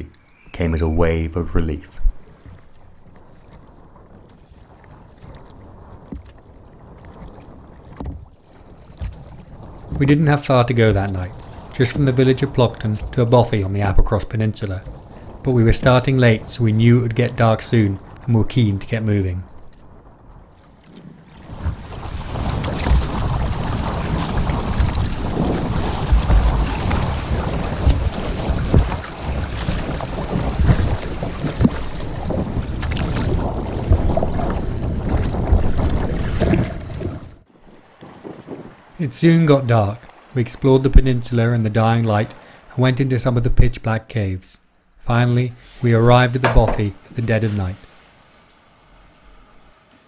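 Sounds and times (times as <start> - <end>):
wind rumbling on microphone: 0.0 - 42.5
paddle splashing in water: 2.0 - 10.1, 10.8 - 14.1, 19.5 - 39.0, 40.0 - 40.4, 45.6 - 50.0.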